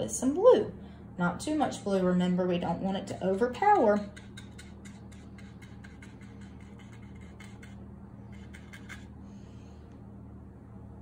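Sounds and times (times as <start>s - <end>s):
steady low hum: 0.0s - 11.0s
paintbrush dabbing on paper: 4.0s - 9.0s.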